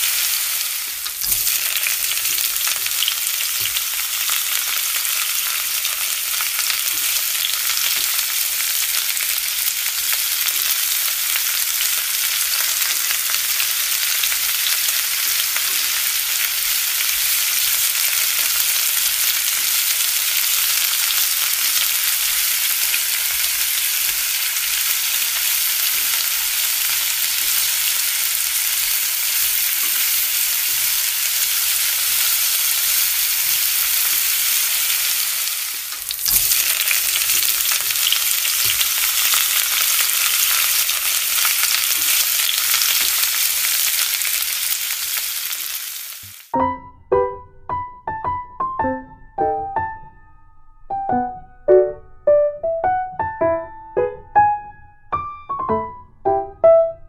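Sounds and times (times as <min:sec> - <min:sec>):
oil sizzling with crackling pops: 0:00.0 - 0:46.6.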